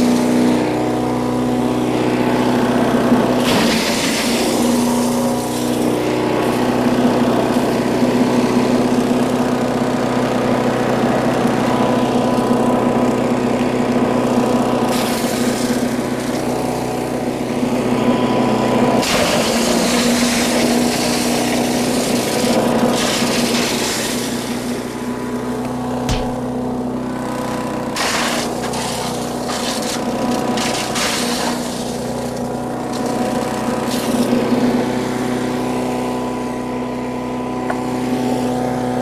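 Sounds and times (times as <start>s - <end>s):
chipper shredder engine running: 0.0s - 39.0s
wood being shredded: 0.0s - 39.0s.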